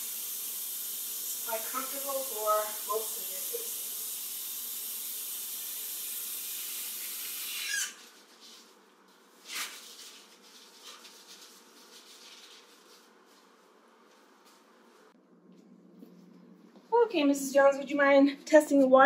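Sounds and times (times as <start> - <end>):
faucet water running into basin: 0.0 - 7.8.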